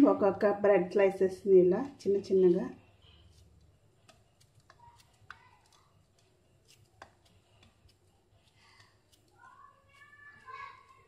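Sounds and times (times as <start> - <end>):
bread being torn: 3.0 - 11.0.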